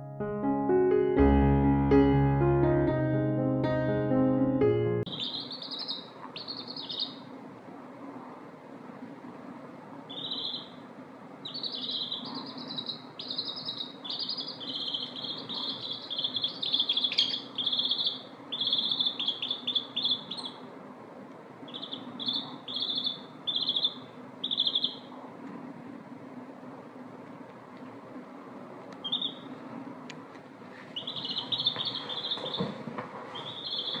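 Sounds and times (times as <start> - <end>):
chicks peeping: 5.1 - 7.3, 10.1 - 10.8, 11.4 - 20.7, 21.6 - 25.2, 29.0 - 29.6, 30.8 - 34.0.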